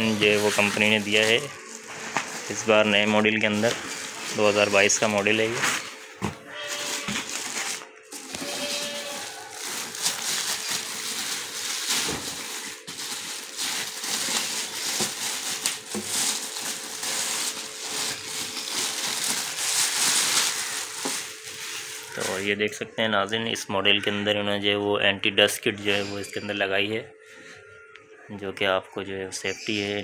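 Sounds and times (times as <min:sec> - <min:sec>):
plastic wrapping crinkling: 0:00.0 - 0:22.6.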